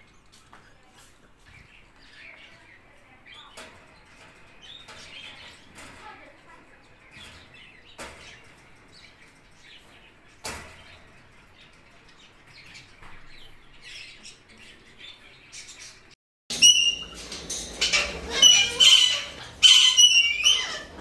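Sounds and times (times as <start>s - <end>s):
parakeets calling shrilly: 15.6s - 21.0s.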